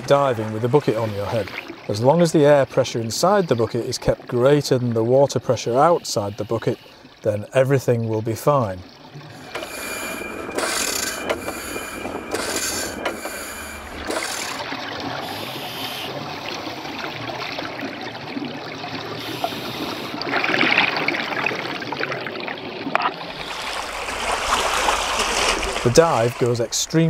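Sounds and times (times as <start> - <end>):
underwater air bubbling and hiss: 0.2 - 2.0, 5.6 - 7.3, 9.0 - 22.2, 23.2 - 26.8
air pump rods clanking and squeaking: 9.3 - 14.6.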